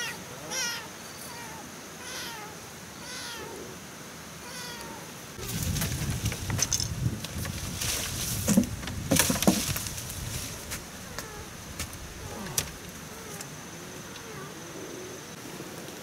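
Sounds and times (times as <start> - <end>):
high insect drone: 0.0 - 16.0
bamboo poles knocking: 8.4 - 9.9.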